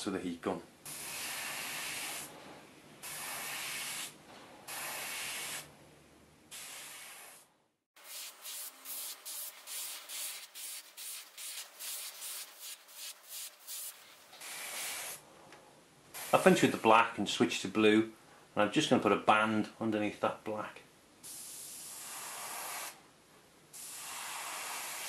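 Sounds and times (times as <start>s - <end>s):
airbrush spraying hiss: 0.9s - 2.3s, 3.0s - 5.7s, 6.5s - 7.4s, 8.0s - 15.2s, 16.2s - 16.9s, 21.2s - 23.0s, 23.8s - 25.0s.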